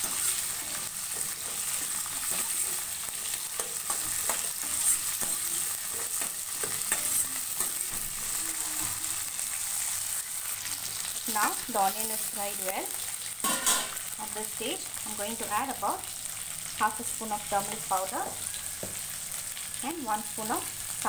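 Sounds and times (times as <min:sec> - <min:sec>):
steel spoon scraping pan: 0:00.0 - 0:07.8, 0:13.4 - 0:14.0
onions sizzling in oil: 0:00.0 - 0:21.0.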